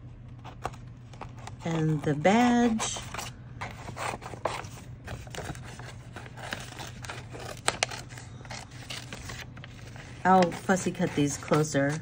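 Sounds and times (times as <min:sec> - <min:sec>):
paper rustling: 0:00.3 - 0:12.0
scissors snipping paper: 0:03.8 - 0:12.0.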